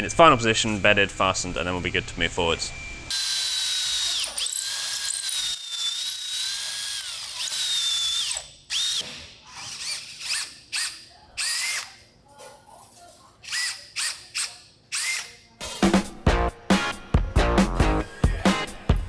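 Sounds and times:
cordless drill boring into wood: 3.1s - 12.0s, 13.4s - 15.4s.

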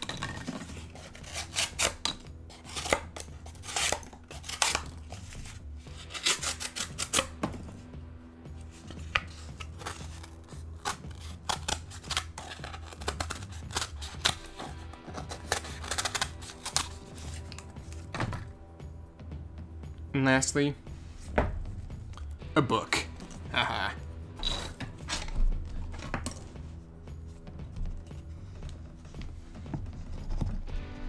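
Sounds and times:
knife cutting cardboard: 0.0s - 7.8s, 8.6s - 18.1s.

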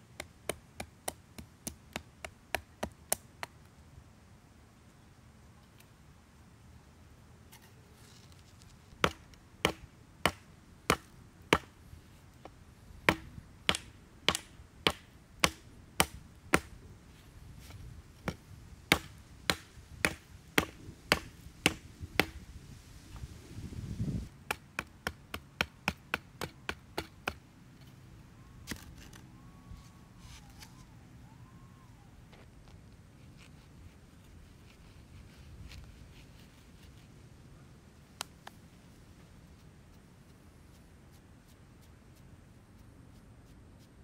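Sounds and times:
hatchet chopping wood: 9.0s - 11.7s, 13.1s - 16.7s, 18.3s - 22.4s, 24.4s - 27.4s.

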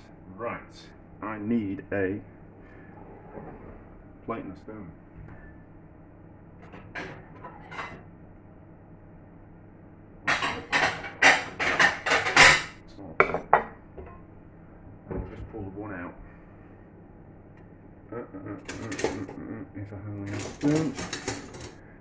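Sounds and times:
crockery and cutlery clattering: 10.3s - 14.2s, 18.6s - 19.4s, 20.2s - 21.8s.

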